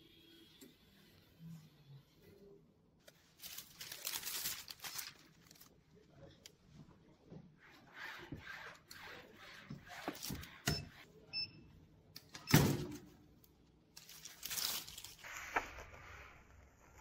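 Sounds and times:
film rustling: 3.0 - 6.4, 13.9 - 16.0.

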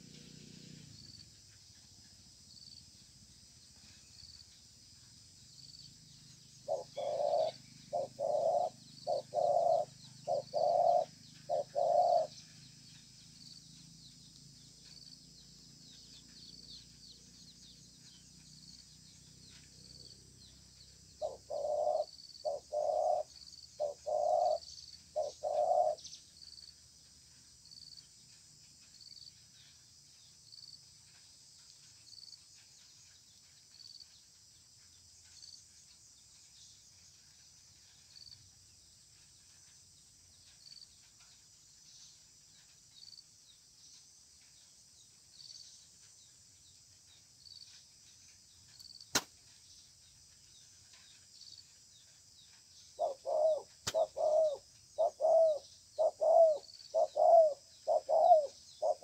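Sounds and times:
dove cooing: 6.6 - 12.4, 21.2 - 26.0, 53.0 - 59.0.

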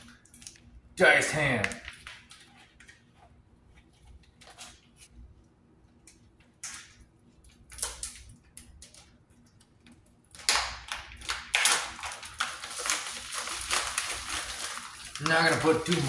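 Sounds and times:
plastic packet crinkling: 10.4 - 16.0.

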